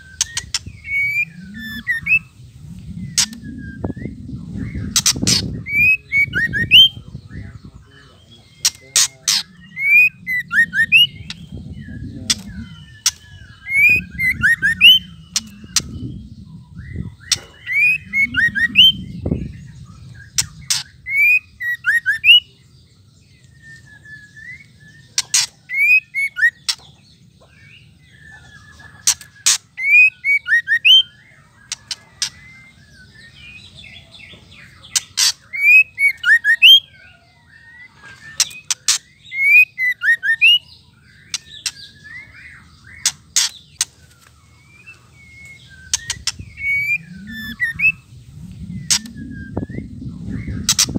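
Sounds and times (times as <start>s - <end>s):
bird rattling calls and chirps: 0.0s - 2.3s, 4.6s - 7.0s, 8.5s - 16.2s, 20.0s - 21.9s, 25.2s - 27.0s, 28.6s - 30.6s, 31.4s - 32.7s, 34.9s - 36.6s, 41.2s - 44.3s, 45.4s - 48.0s, 50.4s - 50.9s.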